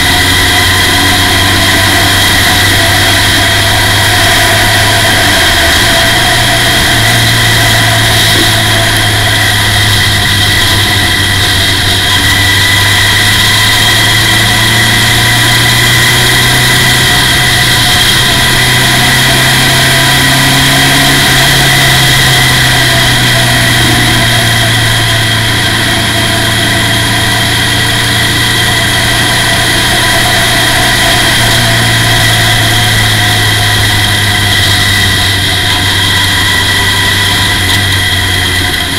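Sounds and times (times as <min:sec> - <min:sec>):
race car engine running: 0:00.0 - 0:38.9.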